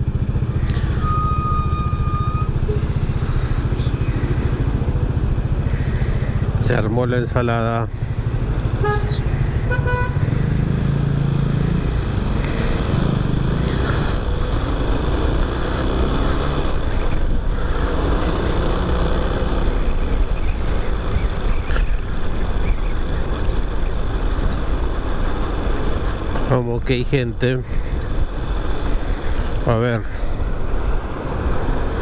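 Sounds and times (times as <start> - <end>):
motorcycle engine running: 0.0 - 26.4
road and wind noise: 0.0 - 32.0.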